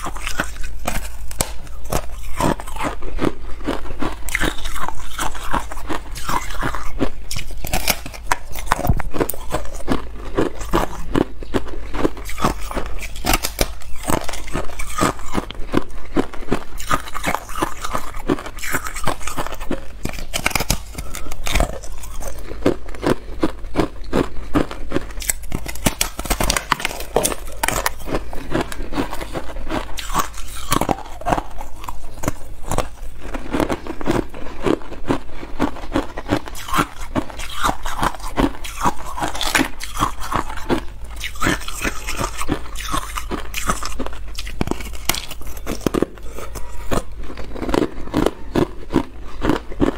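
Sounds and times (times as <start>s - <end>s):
ice crunching in the mouth: 0.0s - 49.9s.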